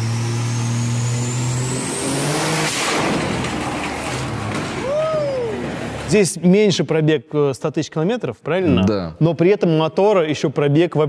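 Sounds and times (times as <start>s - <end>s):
engine revving with turbo whine: 0.0s - 4.5s
engine blowing apart: 2.2s - 5.0s
short shout: 4.8s - 5.7s.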